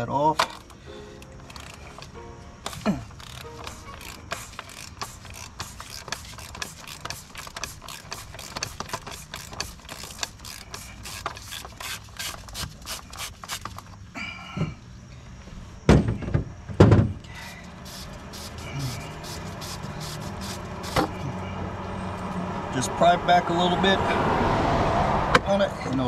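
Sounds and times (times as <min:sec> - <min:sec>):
socket ratchet clicking: 0:00.4 - 0:13.9.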